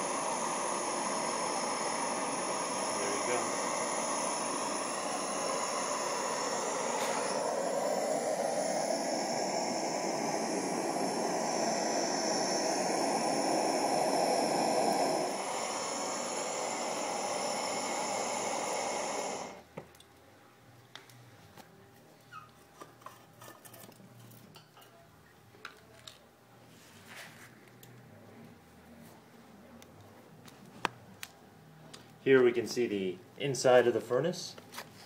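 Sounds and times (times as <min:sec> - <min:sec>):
propane burner hissing: 0:00.0 - 0:19.7.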